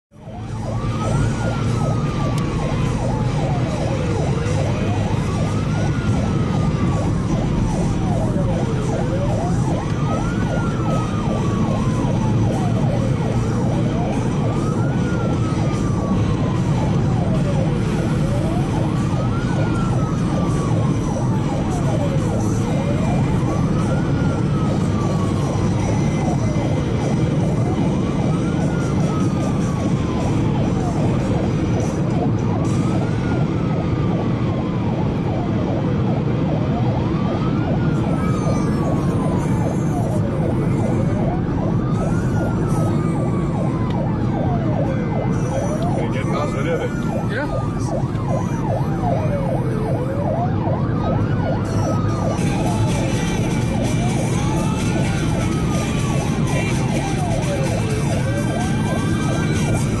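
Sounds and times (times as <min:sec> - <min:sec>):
road and engine noise: 0:00.0 - 1:00.0
siren wailing: 0:00.1 - 1:00.0.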